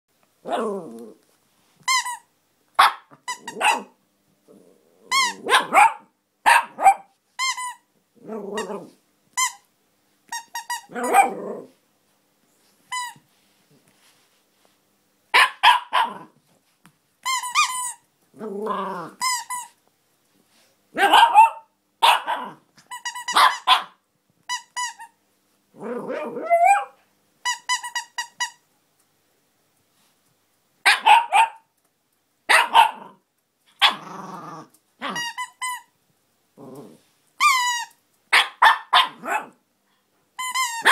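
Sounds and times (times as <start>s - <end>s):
squeaky toy squeaking: 1.8s - 3.9s, 5.1s - 7.8s, 9.4s - 9.7s, 10.3s - 11.3s, 12.9s - 13.2s, 17.2s - 18.0s, 19.2s - 19.8s, 21.0s - 23.9s, 24.5s - 25.2s, 26.4s - 28.6s, 35.0s - 35.9s, 37.4s - 39.2s, 40.4s - 40.9s
small dog barking: 2.8s - 4.0s, 5.3s - 7.1s, 10.9s - 11.6s, 15.3s - 16.4s, 20.9s - 22.6s, 23.3s - 24.0s, 26.1s - 27.0s, 30.8s - 31.7s, 32.5s - 33.2s, 33.8s - 34.0s, 38.3s - 39.6s.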